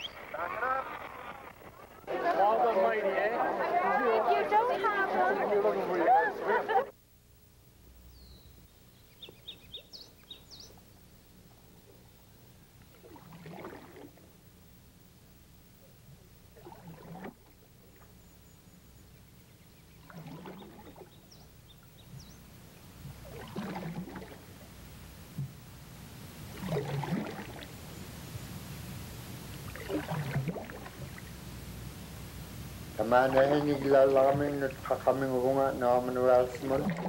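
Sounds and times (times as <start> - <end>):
paddle splashing in water: 12.8 - 14.3, 16.6 - 18.2, 19.9 - 21.3, 23.1 - 25.6, 26.4 - 27.8, 29.5 - 31.4, 33.0 - 35.2, 36.0 - 37.0.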